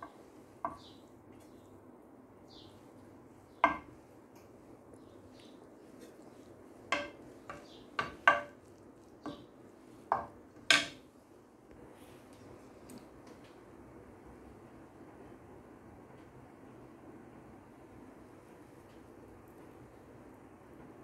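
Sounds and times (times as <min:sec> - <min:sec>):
wooden spoon knocking on glass dish: 0:03.6 - 0:03.9, 0:06.9 - 0:08.6, 0:10.1 - 0:11.0.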